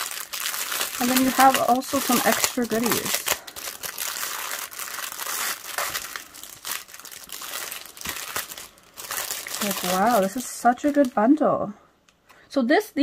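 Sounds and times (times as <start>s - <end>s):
plastic bag crinkling: 0.0s - 11.4s.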